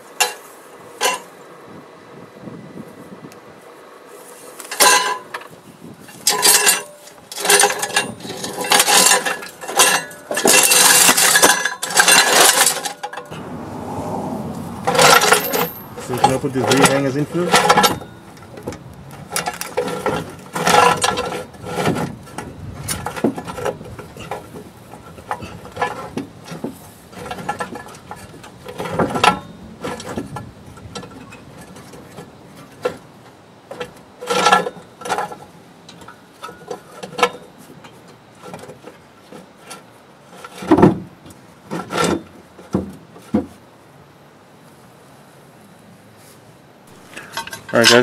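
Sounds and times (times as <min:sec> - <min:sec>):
metal exhaust pipe clunking: 0:04.7 - 0:13.7, 0:14.4 - 0:33.0.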